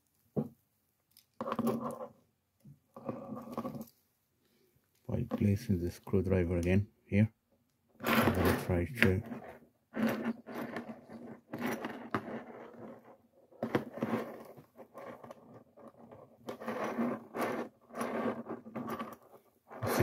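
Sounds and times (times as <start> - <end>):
screwdriver scraping plastic: 8.0 - 13.0, 13.6 - 20.0.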